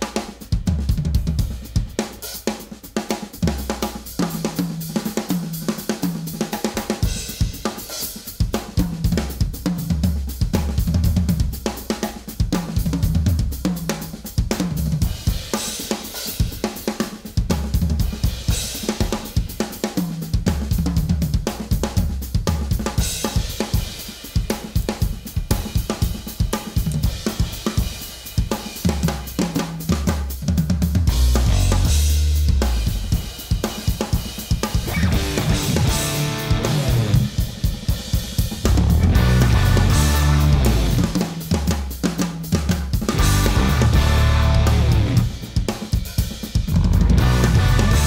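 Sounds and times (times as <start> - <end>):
fast drum kit playing: 0.0 - 48.0
low bass guitar notes: 34.9 - 37.3, 38.8 - 41.1, 43.1 - 45.3, 46.7 - 48.0.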